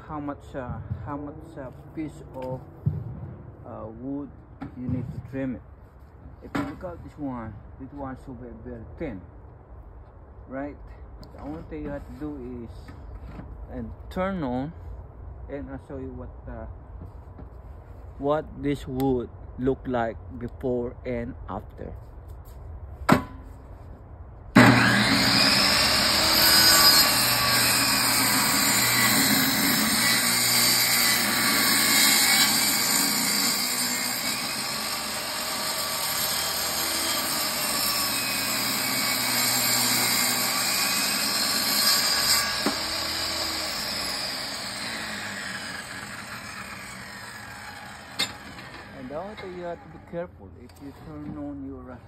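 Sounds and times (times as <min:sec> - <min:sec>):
table saw ripping wood: 0:24.5 - 0:51.4.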